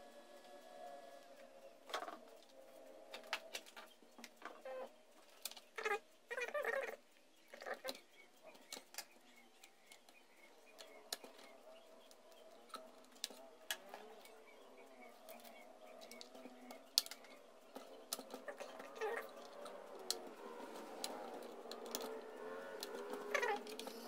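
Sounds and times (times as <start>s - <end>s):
rustling and scraping: 16.7s - 24.0s.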